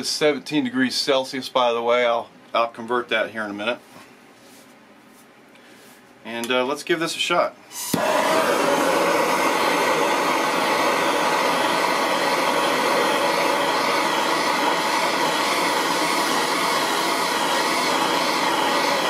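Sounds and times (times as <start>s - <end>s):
gas torch flame hissing: 7.7s - 19.0s.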